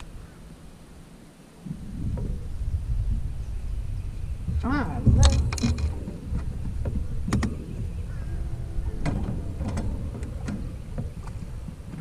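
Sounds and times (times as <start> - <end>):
low steady rumble: 0.0 - 12.0
fishing rods clicking and knocking: 5.0 - 7.6, 9.0 - 12.0.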